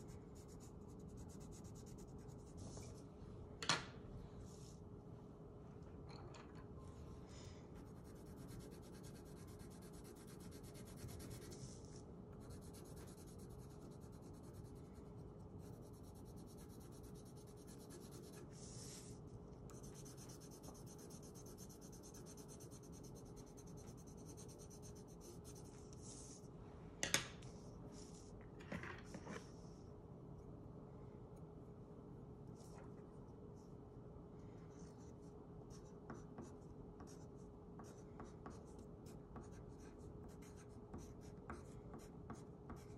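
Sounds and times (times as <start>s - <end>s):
faint steady hum: 0.0s - 42.9s
coloured pencil scratching on paper: 0.1s - 2.9s, 7.8s - 26.4s, 34.7s - 42.9s.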